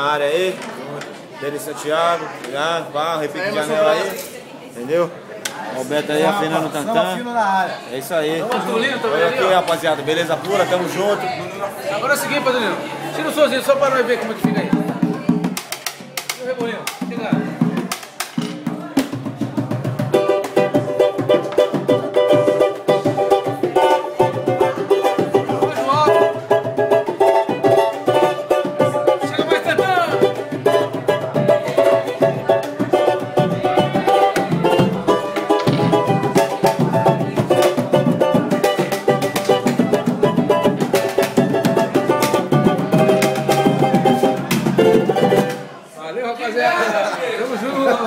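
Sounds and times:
banjo strumming: 13.8s - 45.8s
hand drums: 14.3s - 45.7s.

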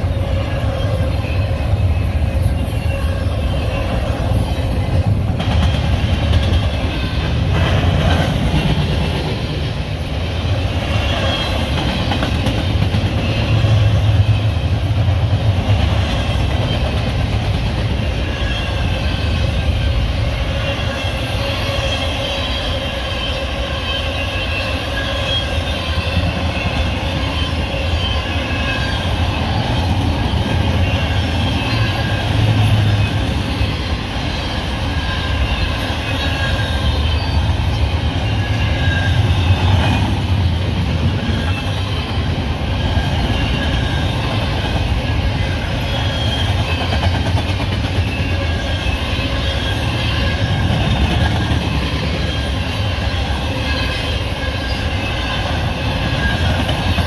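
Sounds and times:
freight train rumbling past: 0.0s - 57.0s
wheel squeal: 10.6s - 14.7s, 17.8s - 57.0s.

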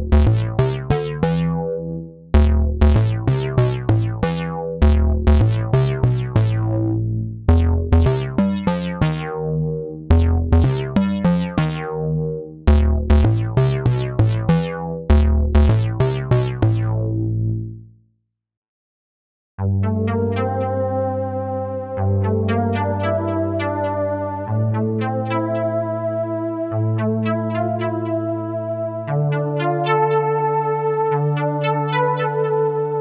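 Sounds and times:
plucky synth bass phrase: 0.0s - 17.8s.

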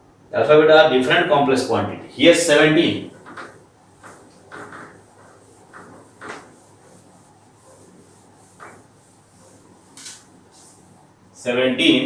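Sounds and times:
eraser wiping whiteboard: 2.3s - 11.2s.

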